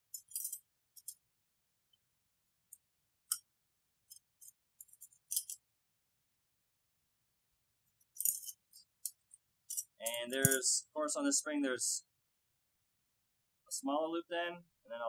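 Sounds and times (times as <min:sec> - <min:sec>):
metal spring clinking: 0:00.0 - 0:01.2, 0:04.4 - 0:05.6, 0:08.2 - 0:10.6.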